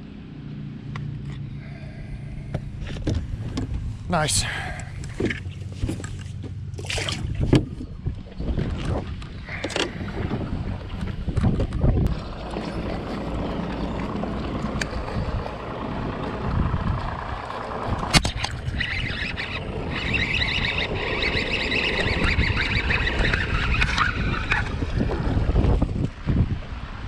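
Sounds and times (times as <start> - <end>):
wind buffeting microphone: 2.4 - 27.0
fishing reel cranking: 18.2 - 24.8.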